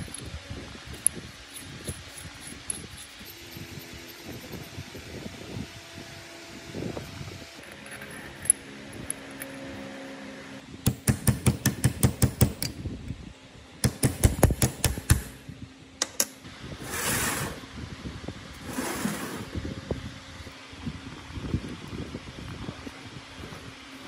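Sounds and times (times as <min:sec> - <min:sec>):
hammer tapping on metal: 0:10.9 - 0:12.7, 0:13.8 - 0:15.3.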